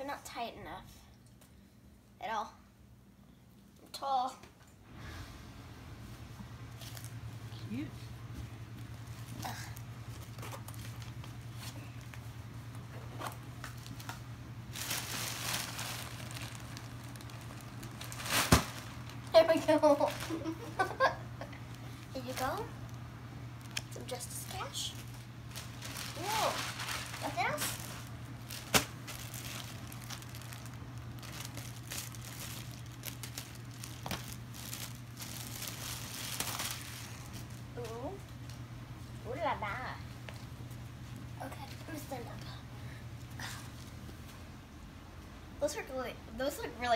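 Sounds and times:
steady low hum: 0.0s - 46.9s
plastic bag crinkling: 6.7s - 7.2s, 8.8s - 12.2s, 13.3s - 37.7s.

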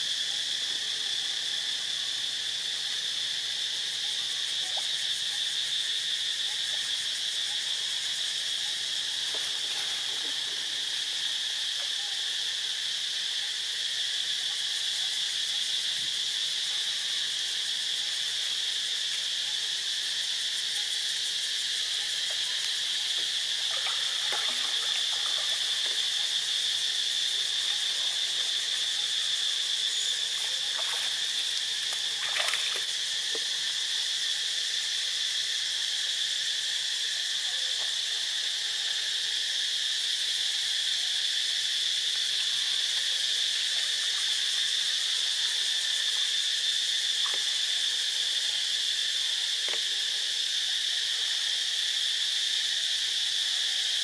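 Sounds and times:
insect chorus drone: 0.0s - 54.0s
faint knocks or splashes: 23.7s - 26.0s, 31.8s - 33.5s.

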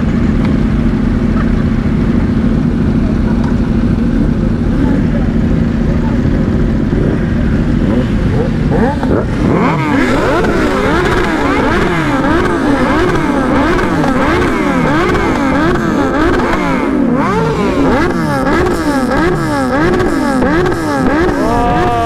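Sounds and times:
motorcycle engines revving: 0.0s - 22.0s.

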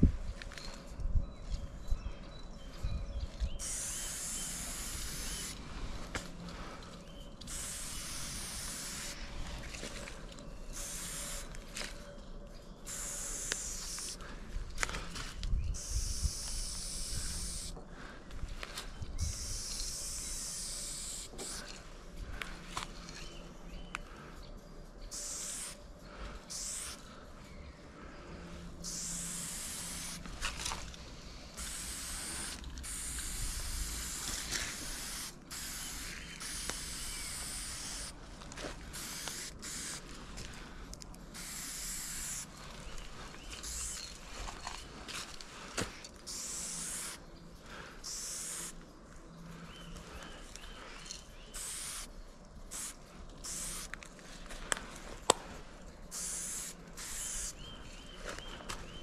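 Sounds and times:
spray paint can hissing: 3.6s - 5.6s, 7.4s - 9.2s, 10.7s - 11.6s, 12.9s - 14.2s, 15.8s - 17.8s, 19.2s - 21.7s, 25.1s - 25.8s, 26.5s - 27.0s, 28.8s - 30.2s, 31.6s - 38.2s, 38.9s - 40.1s, 41.3s - 42.5s, 43.6s - 44.0s, 46.3s - 47.2s, 48.0s - 48.8s, 51.5s - 52.1s, 52.7s - 53.9s, 56.1s - 57.6s.

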